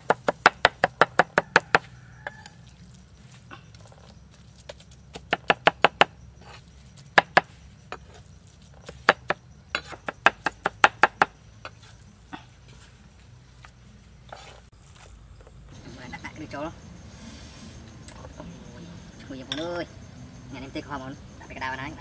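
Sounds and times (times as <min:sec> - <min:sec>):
cleaver chopping on wooden block: 0:00.0 - 0:01.9, 0:05.1 - 0:06.1, 0:09.0 - 0:11.4.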